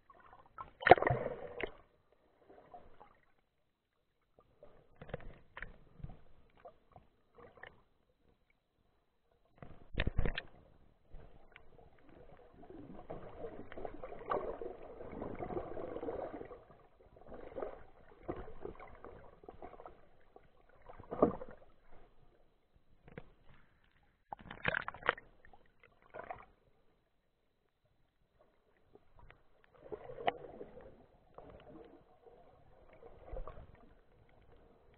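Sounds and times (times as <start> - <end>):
underwater water rushing: 0.0 - 1.9, 11.2 - 22.0.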